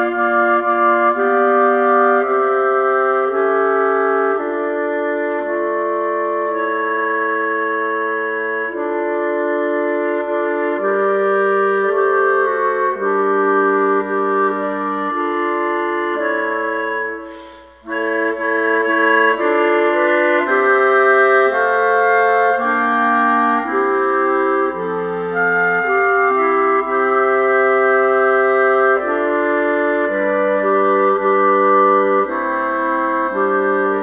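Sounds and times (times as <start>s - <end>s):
clarinets playing chords: 0.0s - 34.0s.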